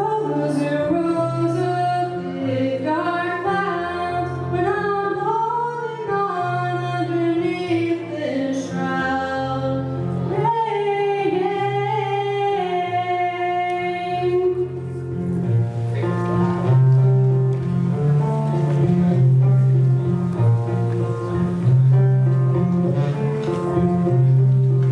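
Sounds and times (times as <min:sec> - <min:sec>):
woman singing slow song: 0:00.0 - 0:15.0
low keyboard chords: 0:11.7 - 0:24.9.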